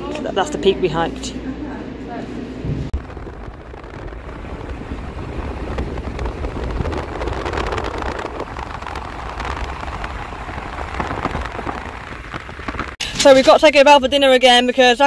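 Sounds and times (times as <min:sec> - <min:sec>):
wind buffeting microphone: 0:02.6 - 0:14.8
road noise in moving car: 0:02.9 - 0:13.0.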